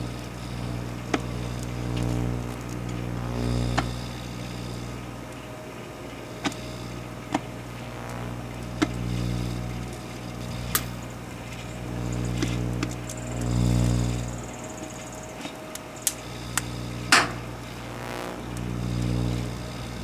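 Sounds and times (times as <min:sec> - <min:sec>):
microwave oven humming: 0:00.0 - 0:20.0
sharp snaps: 0:15.4 - 0:17.4.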